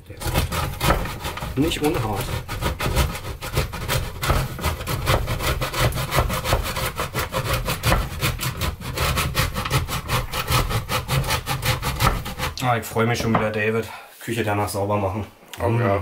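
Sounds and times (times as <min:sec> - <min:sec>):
cheese scraping on grater: 0:00.0 - 0:12.6.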